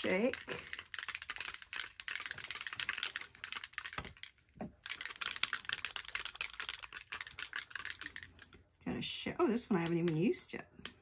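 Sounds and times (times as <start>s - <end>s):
spray bottle rattling when shaken: 0.0s - 8.8s.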